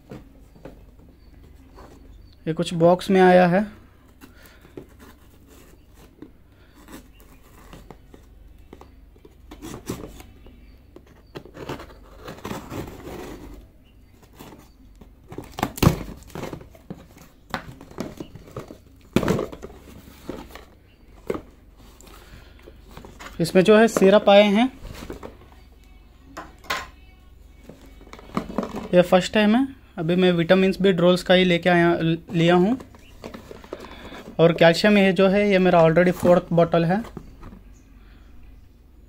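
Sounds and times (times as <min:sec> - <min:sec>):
cardboard scraping and rustling: 0:04.0 - 0:25.7, 0:27.6 - 0:29.0, 0:32.2 - 0:35.0, 0:35.6 - 0:37.7.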